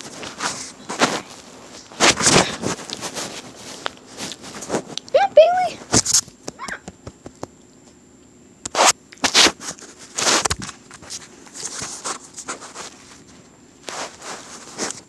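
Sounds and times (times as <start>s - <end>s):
fabric rubbing on microphone: 0.0s - 5.0s, 8.7s - 15.0s.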